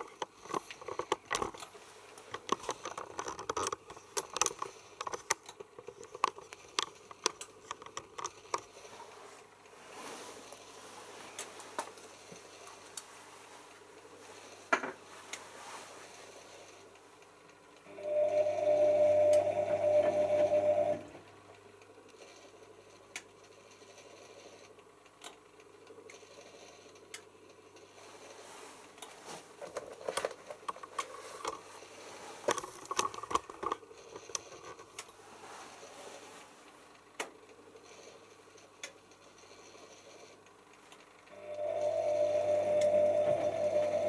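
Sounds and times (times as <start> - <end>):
washing machine motor humming: 5.8 - 22.0, 40.6 - 44.0.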